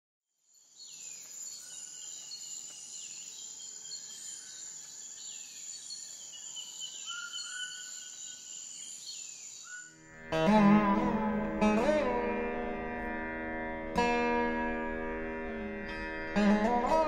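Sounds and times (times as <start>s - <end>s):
birds calling: 1.0s - 10.0s.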